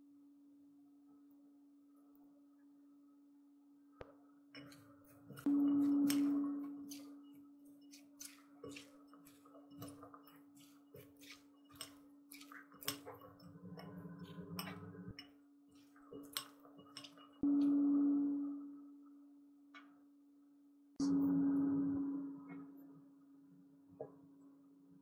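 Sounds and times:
spatulas tapping glass bowl: 0:04.6 - 0:17.4
held musical tone: 0:05.5 - 0:07.2, 0:21.0 - 0:24.5.

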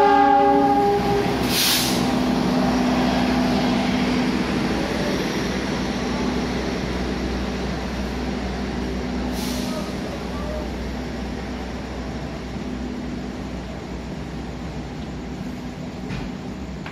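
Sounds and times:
idling diesel train engines: 0:00.0 - 0:16.9
short hiss: 0:01.4 - 0:02.1, 0:09.3 - 0:10.0.

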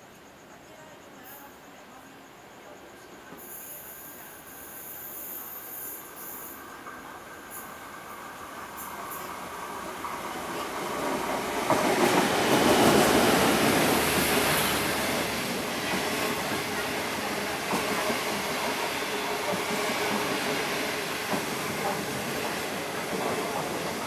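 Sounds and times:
passenger train passing at speed: 0:00.0 - 0:24.0
train wheel clatter: 0:08.7 - 0:24.0.

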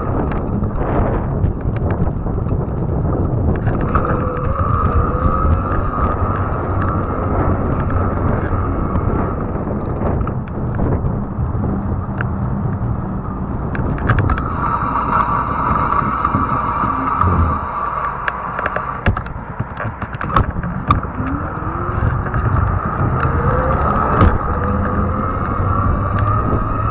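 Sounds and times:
wind buffeting microphone: 0:00.0 - 0:26.9
high motor whine: 0:03.0 - 0:26.9
small clicks: 0:03.6 - 0:07.1, 0:16.3 - 0:26.9.

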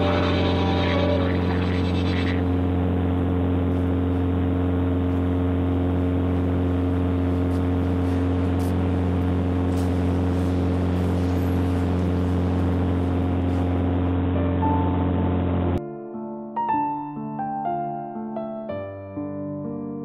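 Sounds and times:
airplane engine droning in cabin: 0:00.0 - 0:15.8.

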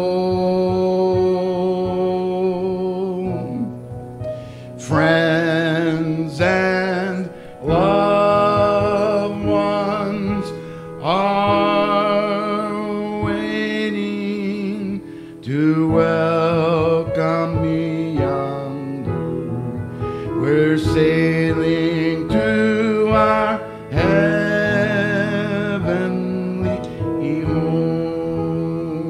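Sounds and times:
man singing gospel song: 0:00.0 - 0:29.0
piano accompaniment: 0:00.0 - 0:29.0.

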